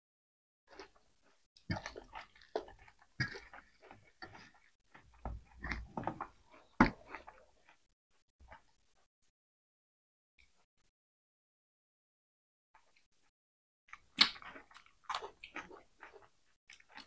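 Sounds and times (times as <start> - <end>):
people chewing and smacking: 0.7 - 9.0, 13.9 - 17.0
hands mixing food on steel plates: 0.8 - 7.9.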